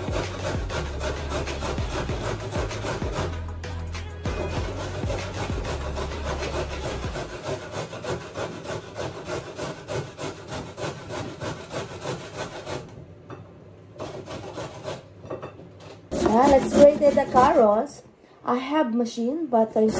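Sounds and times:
carrot grated on metal grater: 0.0 - 3.4, 4.3 - 12.9, 14.0 - 15.1, 16.1 - 17.7.

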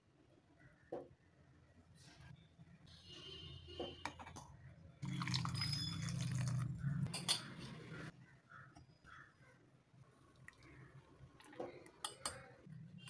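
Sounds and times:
water pouring into jar: 5.0 - 7.1.

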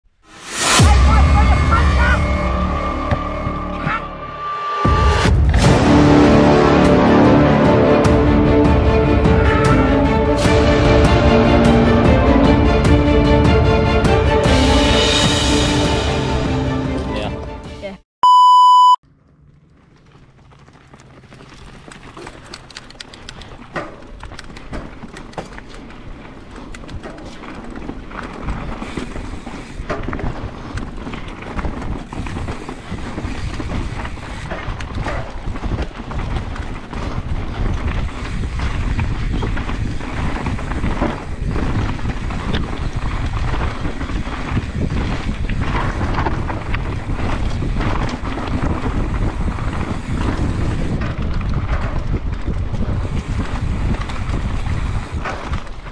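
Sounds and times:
bike knocks and rattles: 19.8 - 55.9
wind buffeting microphone: 31.5 - 55.9.

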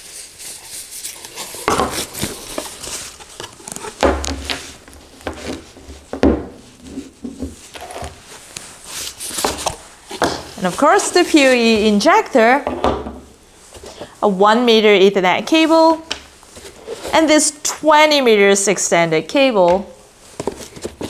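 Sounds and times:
wrapping crinkling and rustling: 0.0 - 12.0
objects knocking on wooden table: 6.1 - 6.6.

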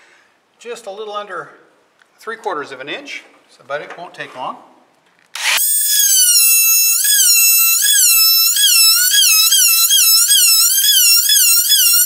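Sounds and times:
oscillating saw cutting wood: 5.4 - 12.0.

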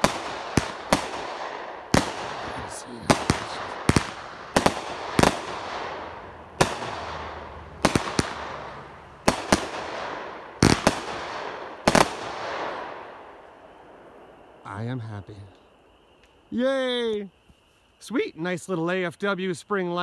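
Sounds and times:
fireworks bangs with hiss: 0.0 - 13.2.

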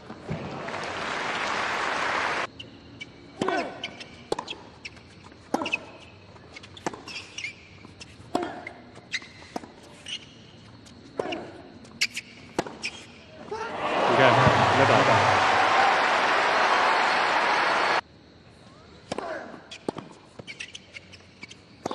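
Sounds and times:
crowd applause: 0.4 - 2.5, 13.7 - 18.0
tennis ball bounces: 3.4 - 4.6, 12.6 - 12.9
tennis racquet strikes: 12.1 - 13.0.

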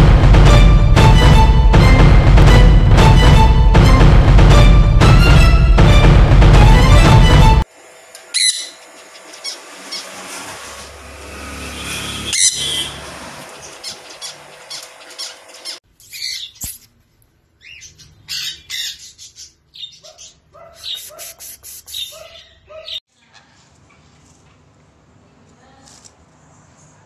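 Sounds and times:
parrots squawking and chirping: 8.3 - 11.1, 11.7 - 16.8, 17.6 - 23.0.

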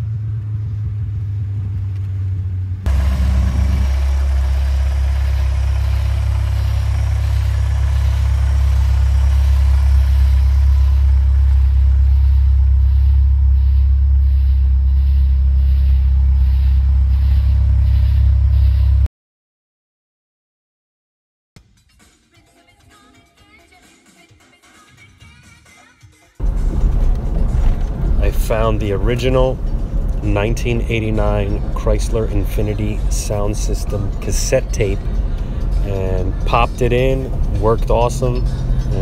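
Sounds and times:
car engine droning: 0.0 - 19.1, 26.4 - 39.0.

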